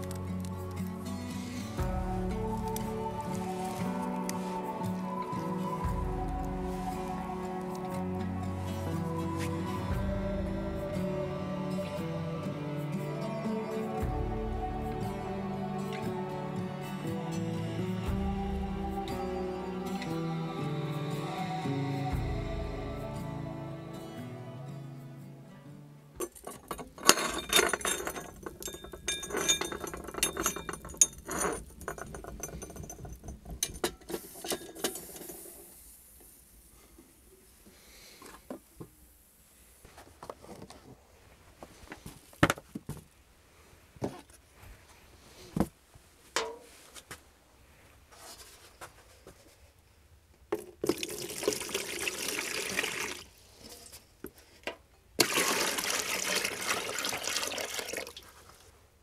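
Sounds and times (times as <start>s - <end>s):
knocks and clinks: 26.2s - 35.4s
metal pots clinking: 26.2s - 35.4s, 46.4s - 46.7s, 55.2s - 58.0s
water pouring into basin: 50.8s - 53.3s, 55.2s - 58.3s.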